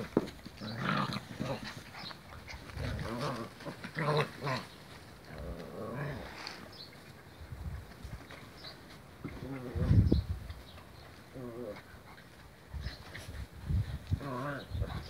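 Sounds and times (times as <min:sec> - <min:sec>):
puppies growling: 0:00.0 - 0:07.2, 0:10.9 - 0:15.0.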